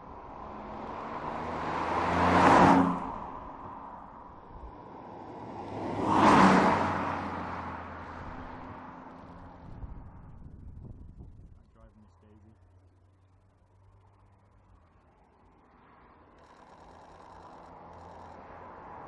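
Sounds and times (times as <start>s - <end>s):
car engine driving past: 0.0s - 10.4s.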